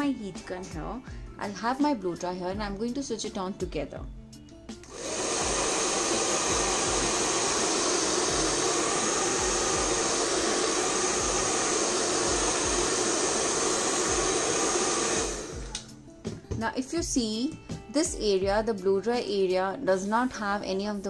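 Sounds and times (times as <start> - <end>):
heat gun and hair dryer blowing: 4.8 - 16.0.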